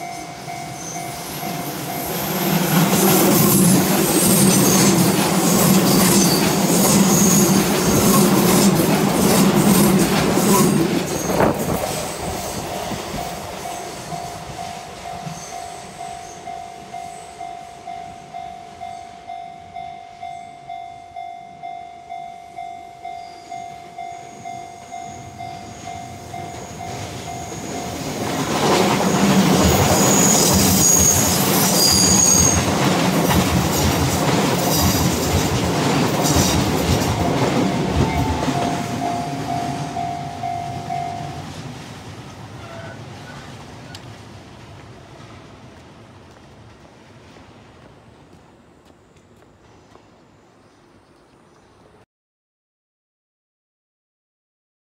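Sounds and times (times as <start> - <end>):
level crossing warning bell: 0.0 - 8.8, 12.2 - 28.6, 29.2 - 41.6
train wheels squealing: 0.0 - 19.3, 23.0 - 35.5
electric train passing: 0.0 - 51.0.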